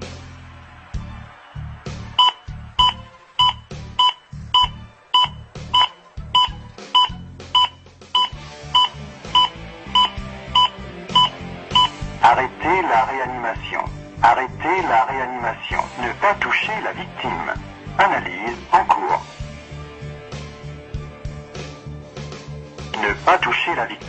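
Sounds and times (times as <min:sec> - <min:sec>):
metronome beeping: 0:02.2 - 0:12.0.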